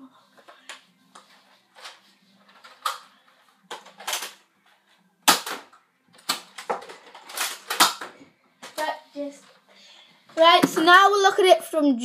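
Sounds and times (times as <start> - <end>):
toy blaster plastic clacks and snaps: 3.7 - 4.4, 5.3 - 8.9.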